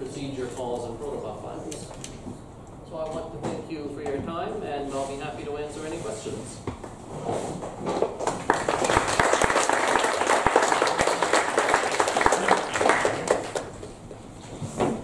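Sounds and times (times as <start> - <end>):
audience applauding: 8.2 - 13.9.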